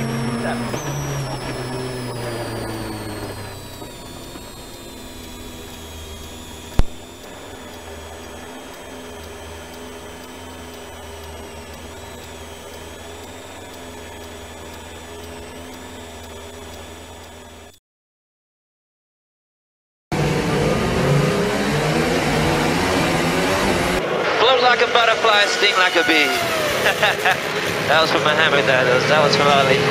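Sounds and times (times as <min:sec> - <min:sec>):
car engine droning with whine: 0:00.0 - 0:17.8, 0:20.1 - 0:29.9
sharp click: 0:00.6 - 0:17.8.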